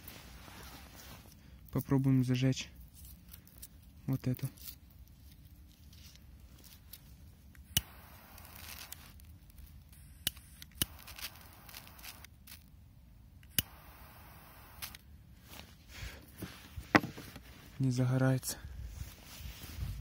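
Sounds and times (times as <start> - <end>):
soft lighter hiss: 7.5 - 12.7, 13.4 - 15.1.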